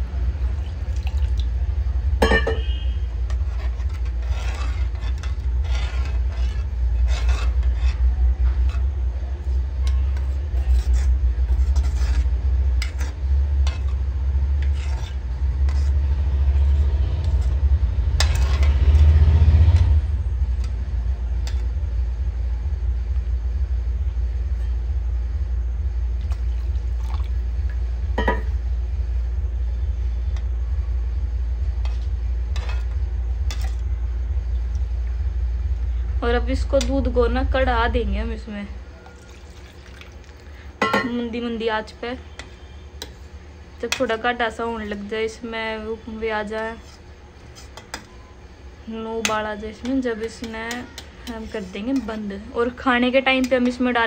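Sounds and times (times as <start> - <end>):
spoon scraping in a pan: 2.2 - 21.8, 31.7 - 33.9, 39.0 - 48.4, 49.1 - 54.0.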